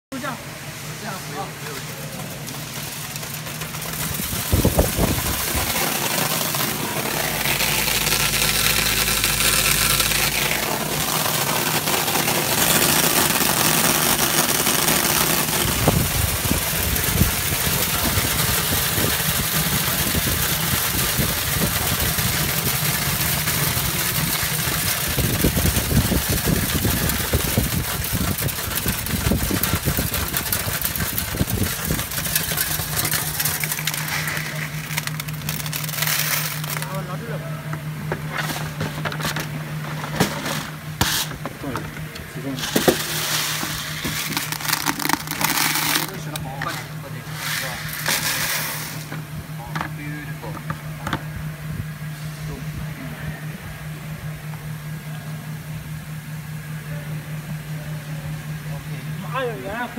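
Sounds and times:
machine mechanical hum: 0:00.1 - 0:59.9
plastic flakes rattling down chutes: 0:01.3 - 0:37.2, 0:42.4 - 0:49.3.

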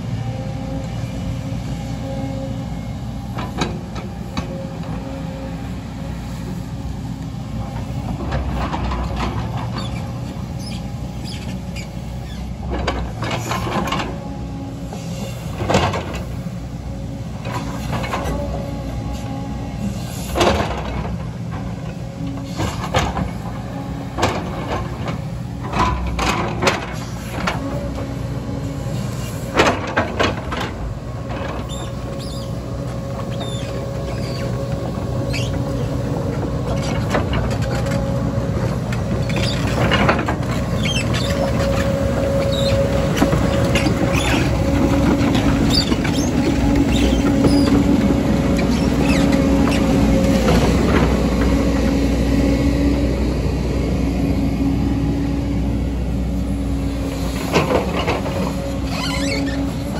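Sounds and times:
diesel engine under load: 0:00.0 - 0:59.9
hydraulic whine: 0:26.0 - 0:59.9.

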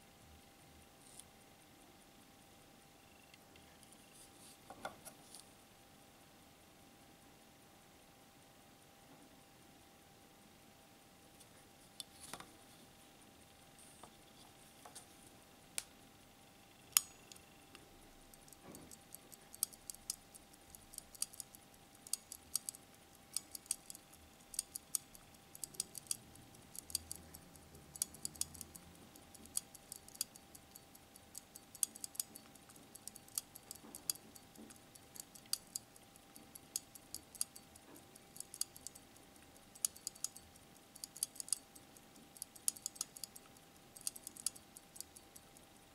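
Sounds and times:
faint steady hum: 0:00.0 - 0:45.9
watch crown clicking: 0:18.3 - 0:45.8.

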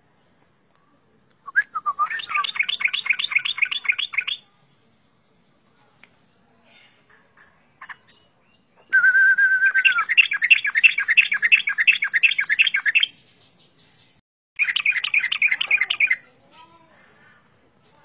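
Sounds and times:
bird singing with chattering notes: 0:01.7 - 0:05.6, 0:06.2 - 0:16.5.

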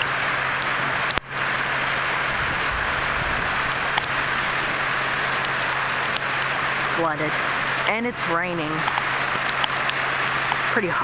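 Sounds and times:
floodwater rushing in creek: 0:00.0 - 0:11.0
hard rain falling: 0:00.0 - 0:11.0.

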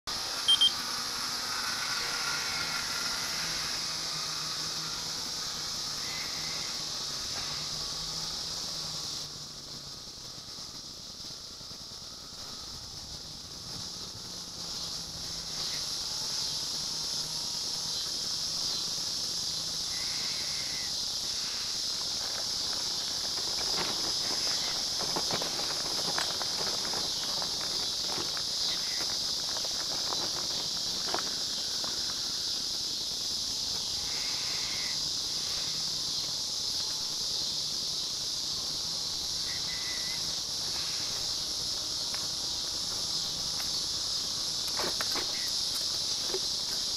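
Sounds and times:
high-pitched insect chorus: 0:00.1 - 0:46.9
wheels rattling over rough pavement: 0:00.1 - 0:46.9
low hum: 0:00.3 - 0:32.8.

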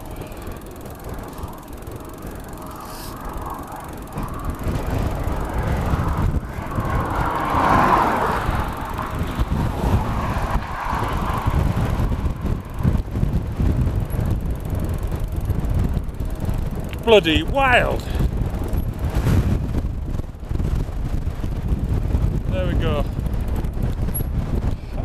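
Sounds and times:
gusty wind buffeting microphone: 0:00.0 - 0:25.0.

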